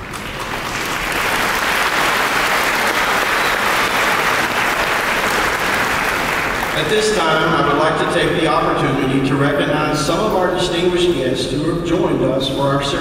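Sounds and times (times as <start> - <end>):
large audience applauding: 0.0 - 7.4.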